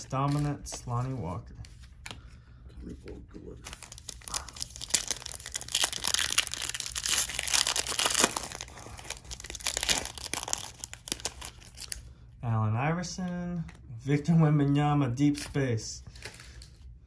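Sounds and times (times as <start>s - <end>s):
foil wrapper tearing and crinkling: 3.7s - 12.0s.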